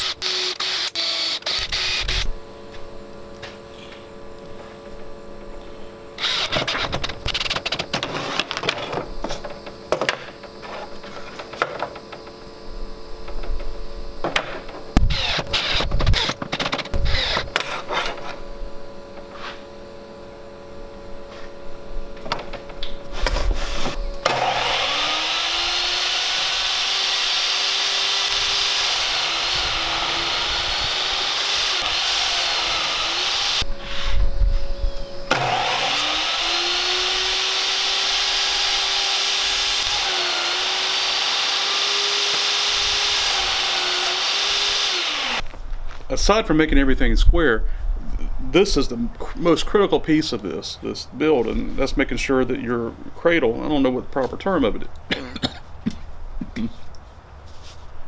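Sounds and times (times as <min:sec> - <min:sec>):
table saw whining: 0:00.0 - 0:02.3, 0:06.2 - 0:18.5, 0:23.2 - 0:45.4.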